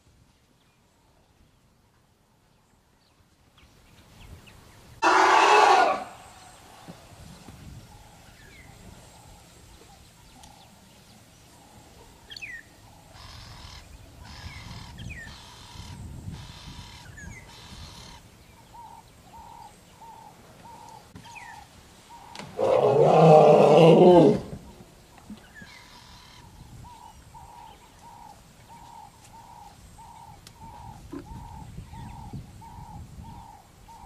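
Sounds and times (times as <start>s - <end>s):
elephant call: 5.0s - 6.5s, 22.6s - 24.6s
birds chirping and calling: 7.6s - 34.0s.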